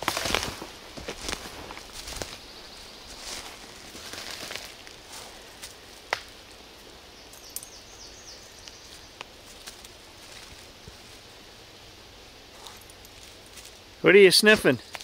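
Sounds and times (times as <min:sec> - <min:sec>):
dog stepping in dry leaves: 0:00.0 - 0:05.7
twigs crackling and snapping: 0:00.0 - 0:06.6, 0:07.2 - 0:07.9, 0:08.6 - 0:11.2, 0:12.6 - 0:13.9.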